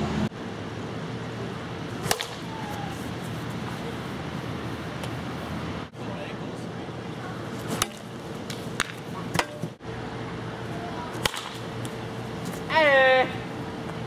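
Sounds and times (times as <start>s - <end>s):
plastic bat hitting ball: 2.0s - 2.5s, 7.7s - 9.6s, 11.2s - 11.6s
person shouting: 12.7s - 13.5s.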